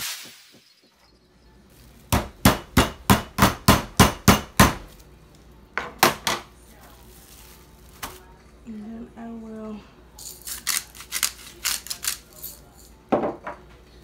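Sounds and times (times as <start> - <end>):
meat mallet pounding on board: 2.1 - 4.8.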